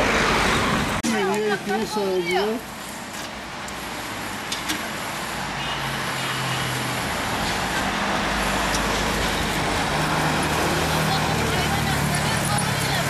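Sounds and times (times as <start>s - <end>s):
steady road noise: 0.0s - 13.0s
vehicle engine passing: 5.4s - 13.0s.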